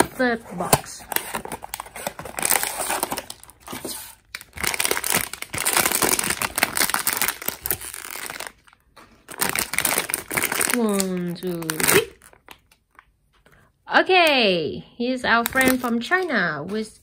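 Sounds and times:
foil bag crinkling: 1.5s - 12.6s.

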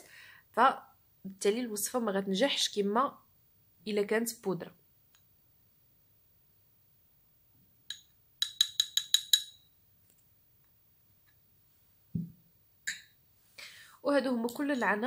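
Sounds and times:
spoon tapping glass bowl: 7.9s - 9.7s, 12.9s - 13.2s.

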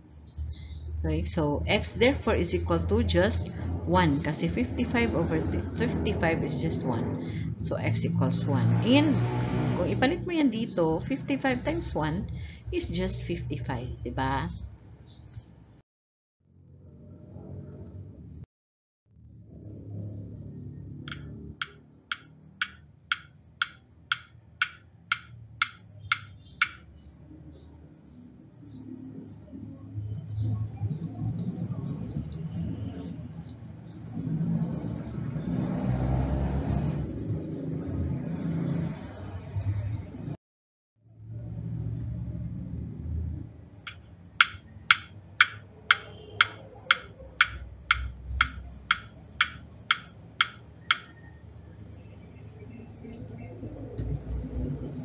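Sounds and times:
sharp regular ticks: 21.1s - 26.8s, 43.9s - 51.1s.

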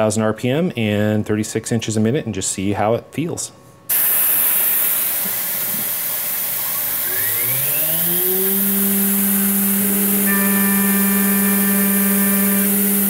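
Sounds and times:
hiss of mist coolant nozzle: 3.9s - 7.2s
milling spindle whine: 5.9s - 13.0s
higher steady tones: 6.3s - 13.0s.

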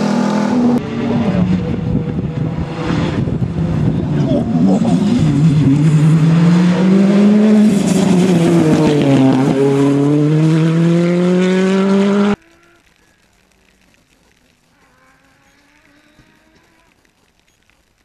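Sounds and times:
rally car engine revving: 0.0s - 12.7s.

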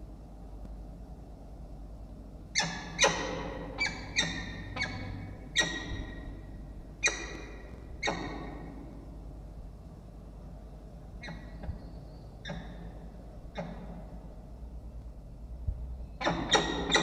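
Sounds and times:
falcon calls: 2.6s - 9.0s.

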